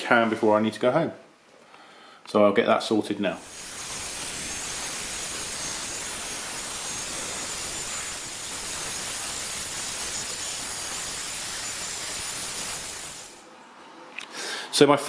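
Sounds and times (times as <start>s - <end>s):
hairdryer blowing air: 3.4s - 13.4s.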